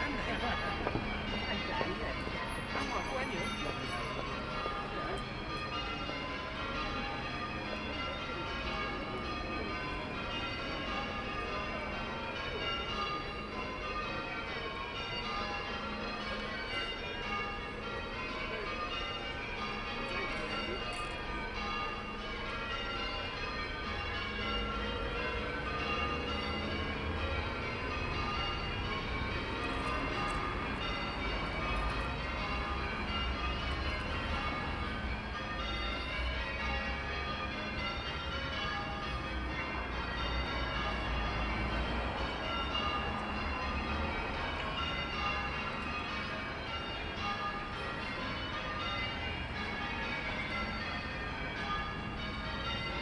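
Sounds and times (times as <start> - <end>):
church bells ringing: 0.0 - 53.0.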